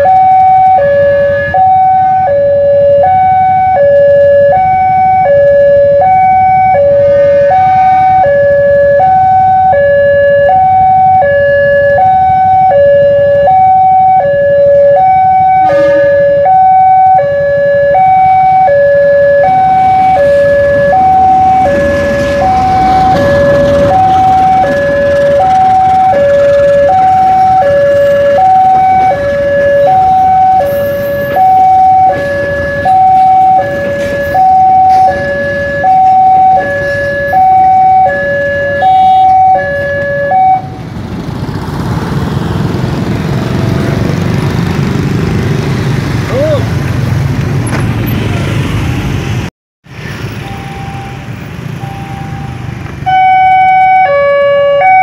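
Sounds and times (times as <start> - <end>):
level-crossing alarm two-tone warning: 0.0 - 40.8, 50.4 - 55.0
train rumble: 18.9 - 53.1.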